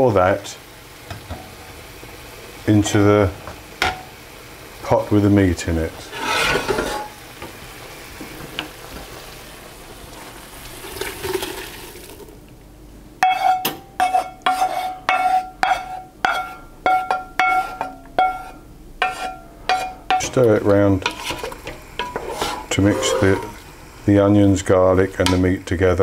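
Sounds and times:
liquid pouring into a pot: 0:10.1 - 0:12.4
wooden spoon knocking metal pan: 0:13.2 - 0:22.5.

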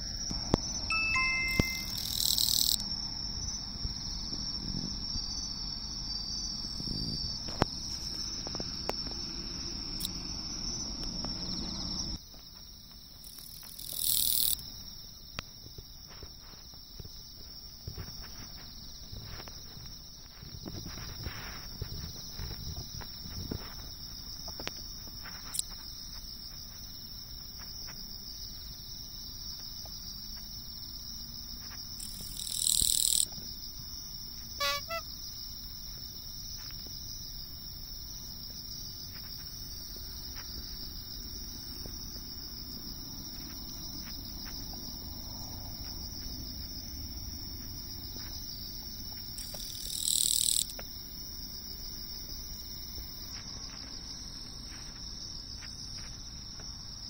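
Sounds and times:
insects trilling: 0:00.0 - 0:57.0
katydid buzzing: 0:01.2 - 0:02.8, 0:13.3 - 0:14.6, 0:32.0 - 0:33.2, 0:34.5 - 0:35.1, 0:49.4 - 0:50.7.

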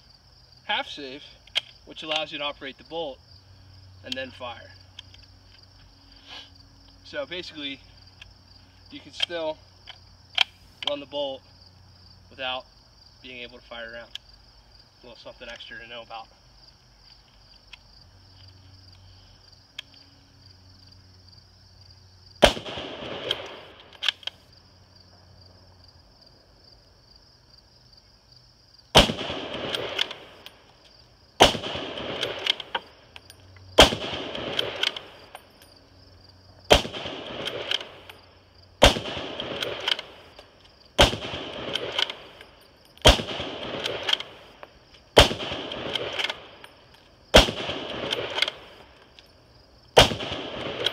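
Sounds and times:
rifle shots: 0:22.4 - 0:24.3, 0:28.9 - 0:30.5, 0:31.4 - 0:32.9, 0:33.8 - 0:35.4, 0:36.7 - 0:38.1, 0:38.8 - 0:40.3, 0:40.9 - 0:42.4, 0:43.0 - 0:46.7, 0:47.3 - 0:48.8, 0:49.9 - 0:50.9.

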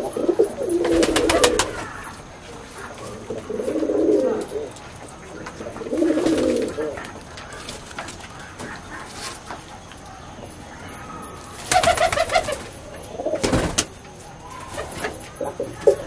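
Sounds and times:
pigeons cooing: 0:00.0 - 0:16.0.

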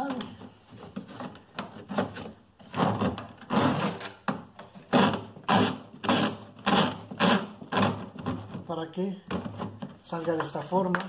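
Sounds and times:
plastic hose scraping: 0:00.0 - 0:11.0.

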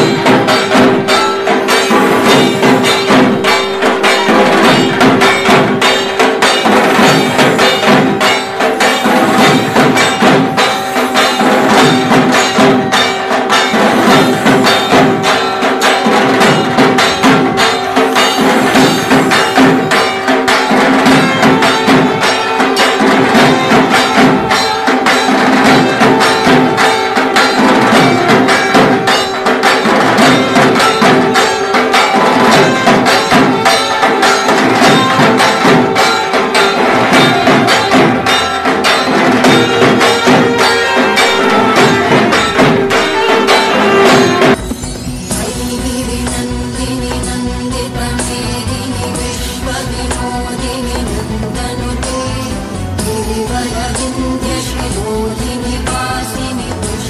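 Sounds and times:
devotional music with percussion: 0:00.0 - 0:57.0.

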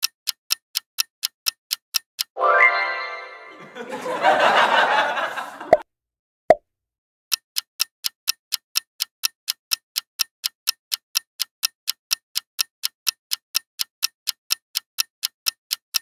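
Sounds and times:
clock ticking: 0:00.0 - 0:02.4, 0:07.3 - 0:16.0.

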